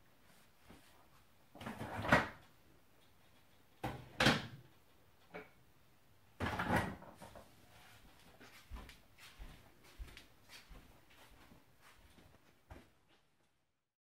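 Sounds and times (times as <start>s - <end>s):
refrigerator door opening and shutting: 6.4s - 7.2s.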